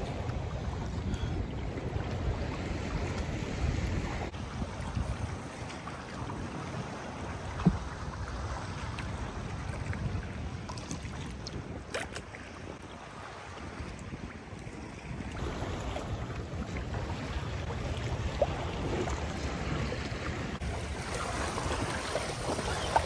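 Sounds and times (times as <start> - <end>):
wind buffeting microphone: 0.0 - 12.9
water lapping around kayak: 0.0 - 23.0.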